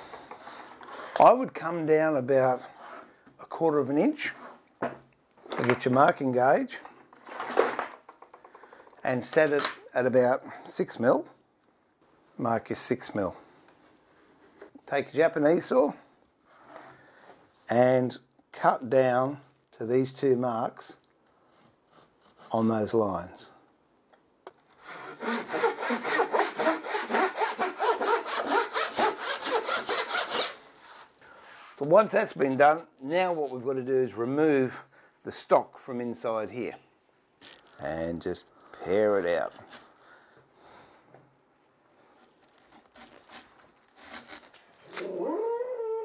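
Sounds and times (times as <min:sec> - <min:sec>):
hand saw cutting plywood: 0:24.8 - 0:31.1.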